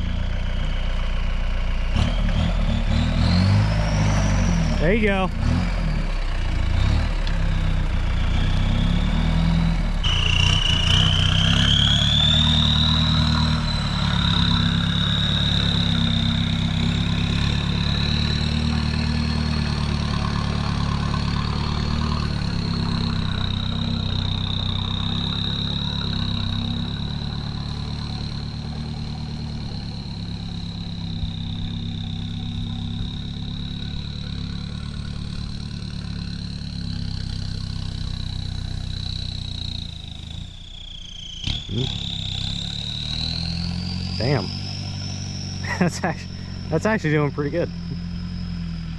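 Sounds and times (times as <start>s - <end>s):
diesel engine running: 0.0s - 48.9s
thin high whine: 10.0s - 48.9s.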